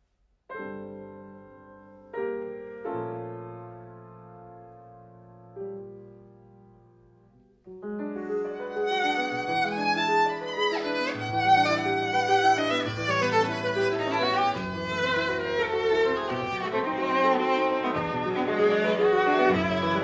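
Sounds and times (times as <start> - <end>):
piano: 0.4 - 20.0
viola melody: 8.0 - 20.0.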